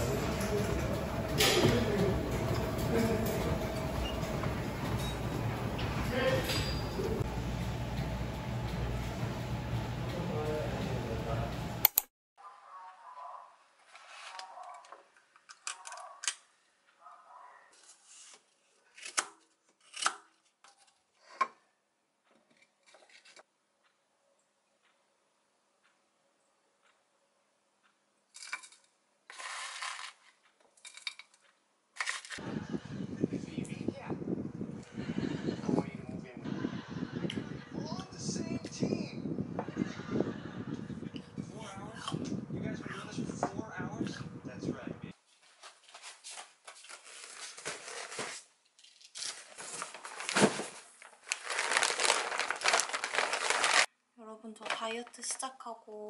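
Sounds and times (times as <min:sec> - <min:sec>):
plastic packaging crinkling: 0:45.6 - 0:53.9.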